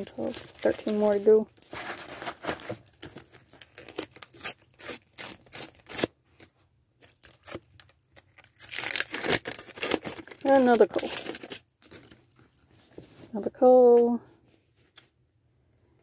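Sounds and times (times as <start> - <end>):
foil packet tearing and crinkling: 0.0 - 6.4, 7.0 - 12.7.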